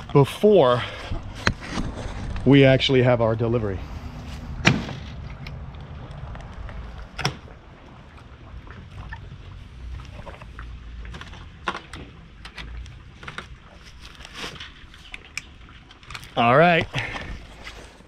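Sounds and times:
low steady rumble: 0:00.0 - 0:18.0.

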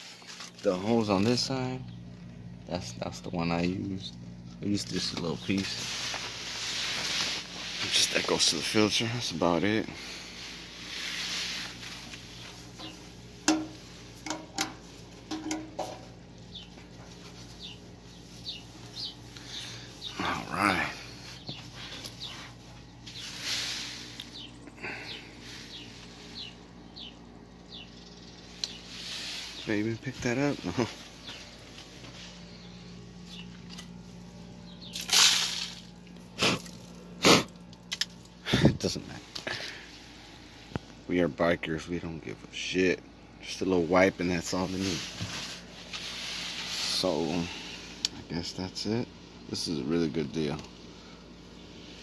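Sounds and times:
crackling rustle: 0:00.0 - 0:02.7, 0:04.0 - 0:41.0, 0:44.3 - 0:48.2
faint steady hum: 0:00.0 - 0:52.0
cloth rubbing on metal: 0:05.6 - 0:09.3, 0:10.2 - 0:16.1, 0:44.4 - 0:48.0
sharp clicks and knocks: 0:13.4 - 0:16.1.

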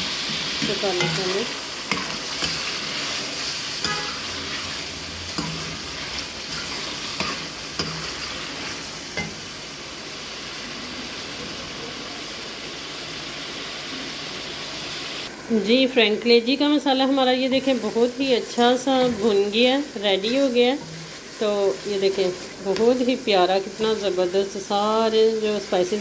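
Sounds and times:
liver sizzling in hot oil: 0:00.0 - 0:26.0.

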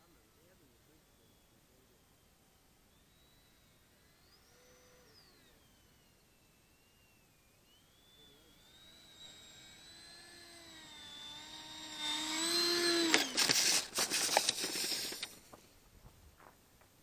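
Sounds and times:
electric ducted fan whining: 0:00.0 - 0:15.5
model plane crunching on grass: 0:12.6 - 0:15.6.

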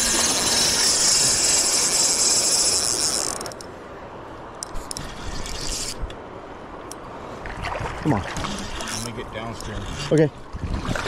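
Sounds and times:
fishing reel drag buzzing: 0:00.0 - 0:03.7, 0:04.6 - 0:06.1, 0:08.4 - 0:10.2
reel clicks: 0:00.0 - 0:03.7, 0:04.6 - 0:06.2, 0:08.4 - 0:10.3.

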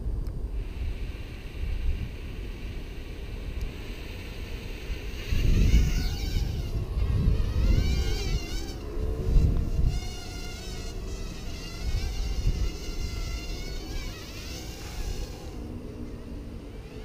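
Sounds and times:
wind rumbling on microphone: 0:00.0 - 0:17.0
drone motors whining: 0:04.3 - 0:17.0.

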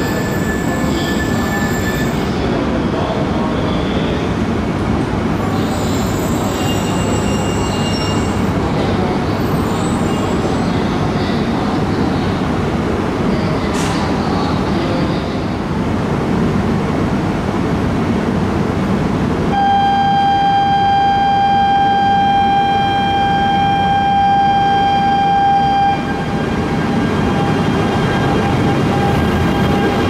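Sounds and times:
train equipment hum and hiss: 0:08.2 - 0:30.0
high signal tone: 0:19.5 - 0:30.0.

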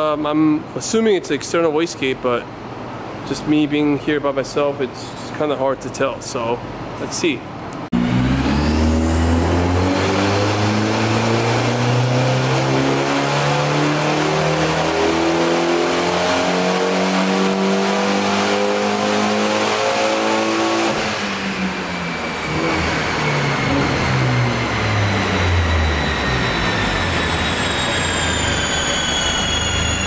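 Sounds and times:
car engine revving: 0:07.9 - 0:30.0.

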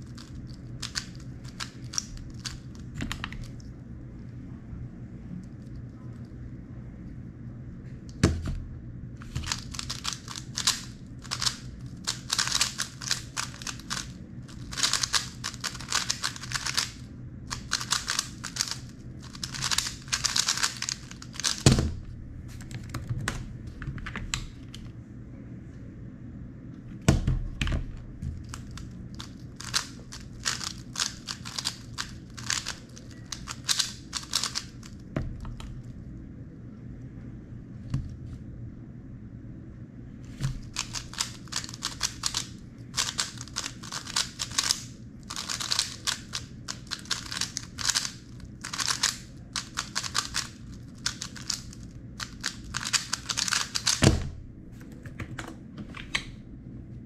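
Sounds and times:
plastic cube clicking: 0:00.2 - 0:03.6, 0:09.3 - 0:21.6, 0:28.5 - 0:34.9, 0:40.6 - 0:54.0.

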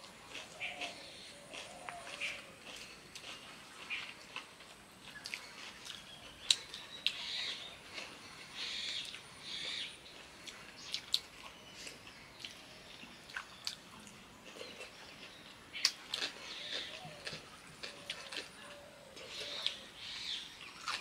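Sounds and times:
person chewing and lip-smacking: 0:00.2 - 0:07.2, 0:13.3 - 0:18.7.

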